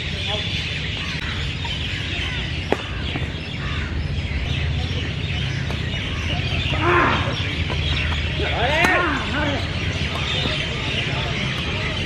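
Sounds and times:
birds chattering and calling: 0.0 - 12.0.

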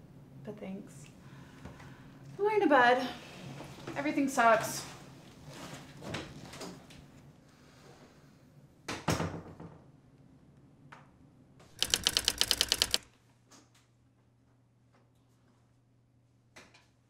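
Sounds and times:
rapid sharp clicks: 11.8 - 13.0.

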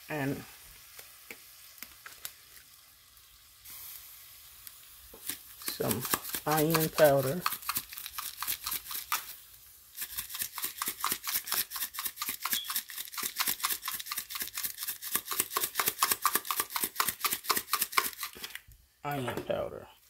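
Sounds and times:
spice shaker rattling: 5.2 - 18.5.

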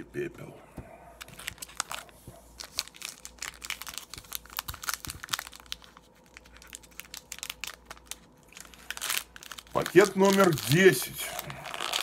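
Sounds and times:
foil wrapper crinkling: 1.2 - 12.0.

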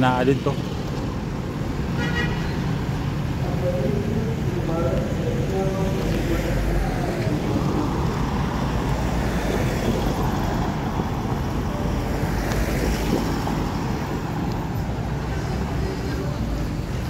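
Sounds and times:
cars driving past: 0.0 - 17.0
wind rumble on microphone: 12.3 - 14.6.

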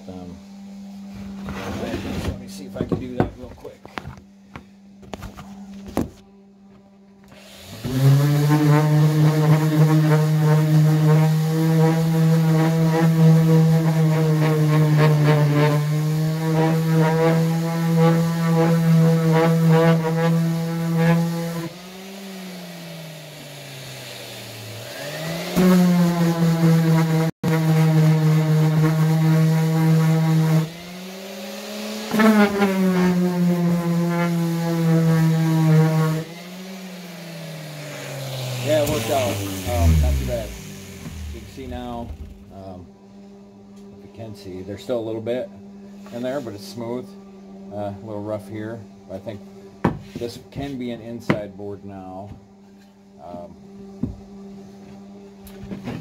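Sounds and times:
electric sander running: 7.3 - 42.9.

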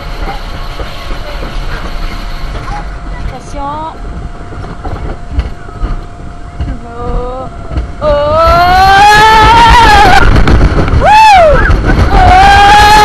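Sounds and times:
roller coaster train rumble: 0.0 - 13.0
riders screaming: 7.6 - 10.4, 11.0 - 13.0.

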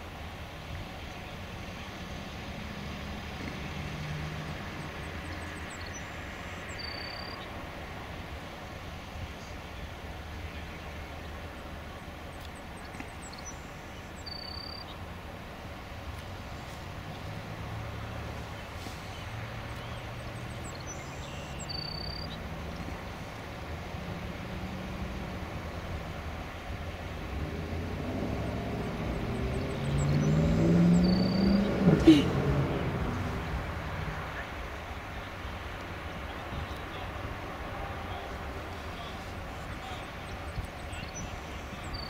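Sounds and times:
road traffic rumble: 0.0 - 42.0
faint high chirps: 6.7 - 7.5, 14.2 - 15.0, 20.6 - 22.4, 29.4 - 31.7.

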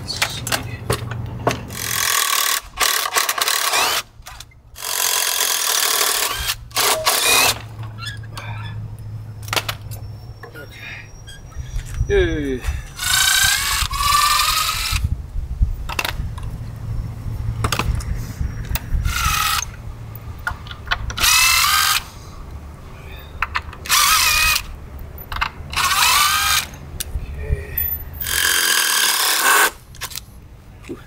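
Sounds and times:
power drill whining: 1.7 - 4.1, 4.8 - 7.6, 13.0 - 15.0, 19.0 - 19.8, 21.2 - 22.1, 23.8 - 24.7, 25.7 - 26.7, 28.2 - 29.8.

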